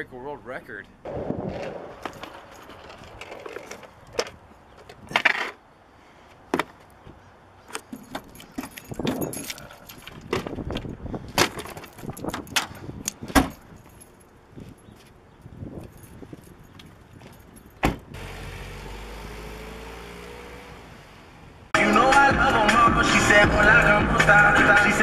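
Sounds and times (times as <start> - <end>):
keys jangling: 7.7 - 10.4, 11.8 - 15.0, 15.7 - 17.8.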